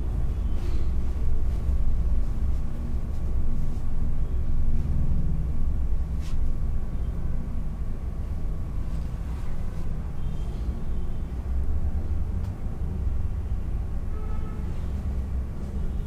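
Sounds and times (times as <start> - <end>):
steady low rumble: 0.0 - 10.2.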